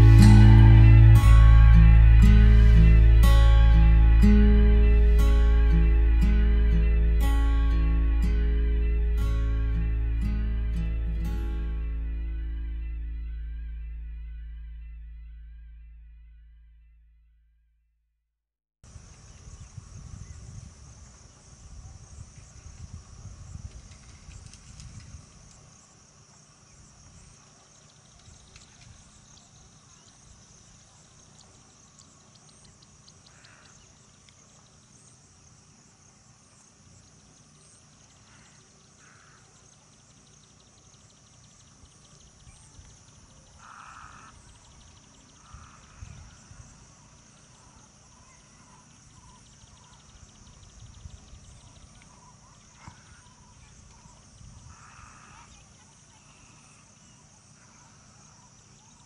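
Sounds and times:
low rumbles: 0:00.0 - 0:17.3
high-pitched insect trill: 0:18.9 - 0:59.0
fast insect ticking: 0:30.5 - 0:34.5, 0:38.0 - 0:46.5.

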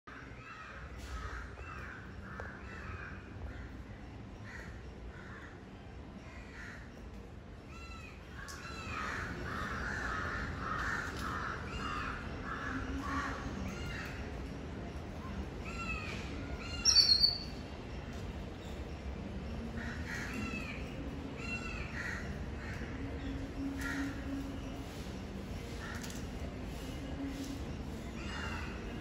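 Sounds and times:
birds chirping: 0:07.7 - 0:24.9
bird harsh cawing calls: 0:15.6 - 0:17.5.

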